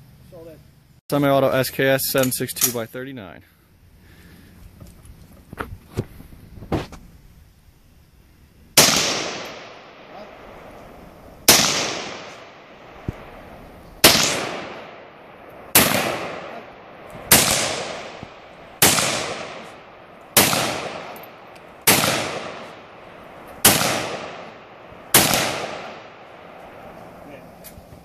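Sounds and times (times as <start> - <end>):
rifle shots with echo: 8.8 - 10.7, 11.4 - 27.3.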